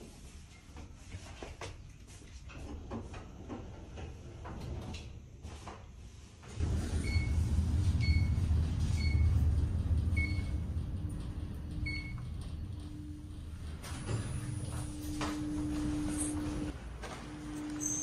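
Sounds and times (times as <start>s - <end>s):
vehicle rumble: 6.6s - 16.9s.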